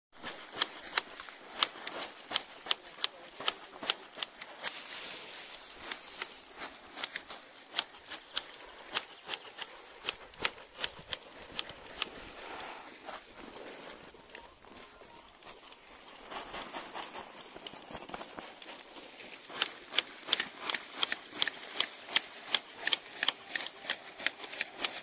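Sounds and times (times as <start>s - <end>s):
shears snipping sharp clicks: 0.2s - 4.8s, 7.0s - 12.2s, 19.5s - 25.0s
rustle of leaves: 0.2s - 25.0s.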